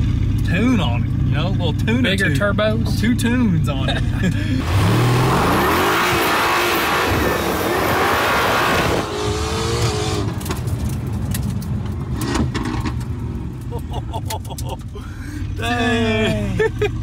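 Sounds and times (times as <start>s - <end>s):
car engine at full throttle: 0.0s - 17.0s
exhaust pops: 5.0s - 15.0s.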